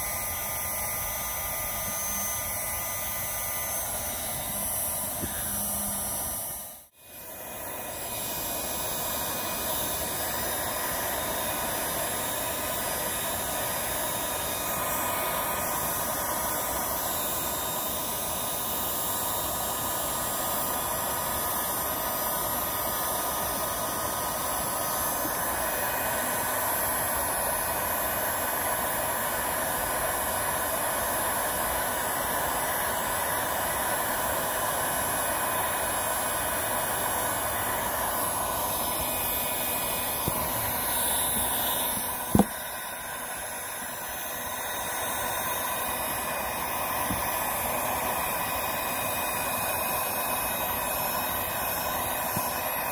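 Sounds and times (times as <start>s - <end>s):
heat gun fan blowing: 0.0s - 52.9s.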